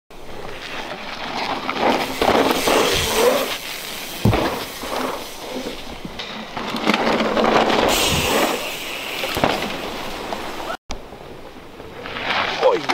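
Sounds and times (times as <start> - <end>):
bike tyres on dirt: 0.1 - 12.9
thud: 4.2 - 5.2.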